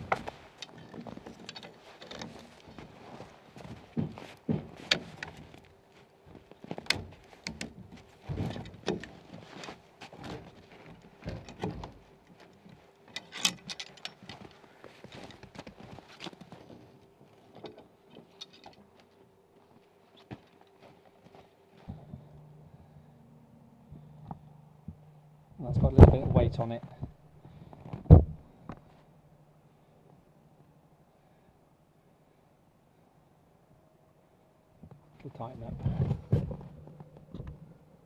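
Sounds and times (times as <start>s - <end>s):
strap and metal hook clinking: 11.4s - 14.6s.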